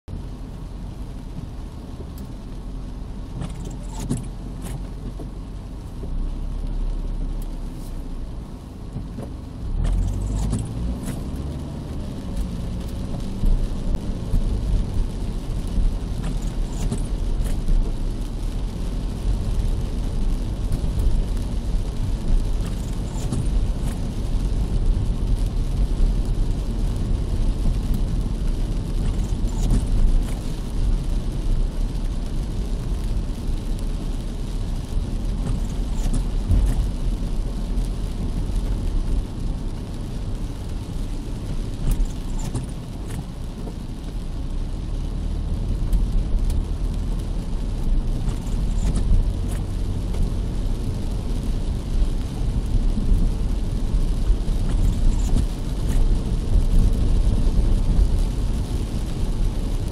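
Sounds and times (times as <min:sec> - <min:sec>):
car engine and road rumble: 0:00.0 - 0:59.9
rain taps on car: 0:00.1 - 0:59.9.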